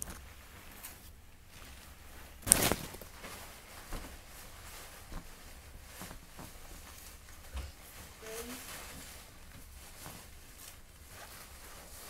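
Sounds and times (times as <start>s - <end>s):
paper rustling: 0.0s - 12.0s.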